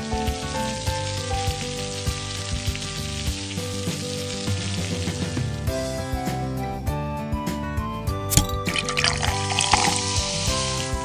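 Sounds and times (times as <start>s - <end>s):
meat sizzling on a grill: 0.0s - 6.1s, 9.3s - 11.0s
background music: 0.0s - 11.0s.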